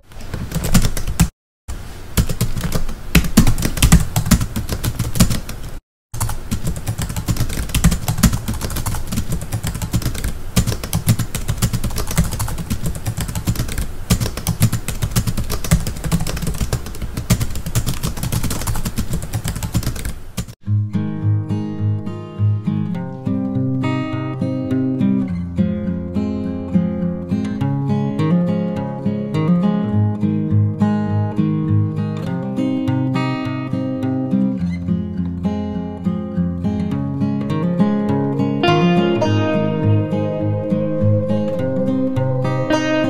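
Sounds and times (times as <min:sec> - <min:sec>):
rapid keyboard typing: 0:00.3 - 0:01.3, 0:02.2 - 0:20.6
music: 0:20.6 - 0:43.0.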